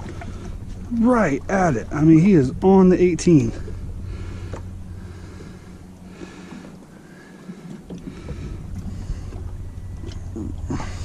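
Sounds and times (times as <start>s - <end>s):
wind rumble on microphone: 7.4s - 11.0s.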